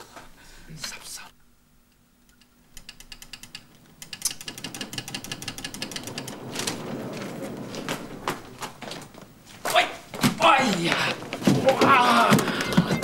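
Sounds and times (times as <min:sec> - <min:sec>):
lift machinery clicking rattle: 0:02.3 - 0:08.5.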